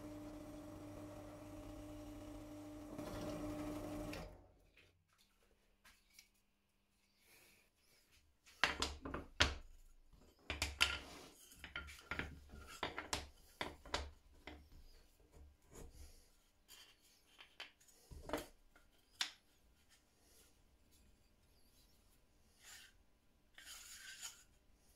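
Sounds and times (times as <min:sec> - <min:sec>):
wooden pieces knocking: 0:08.6 - 0:09.7, 0:10.4 - 0:14.6.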